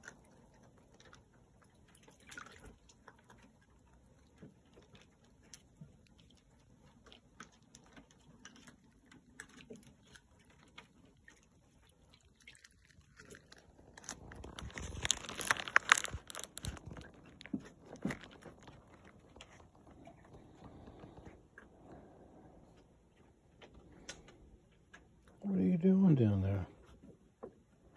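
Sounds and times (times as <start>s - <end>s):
rustling: 12.5s - 24.4s.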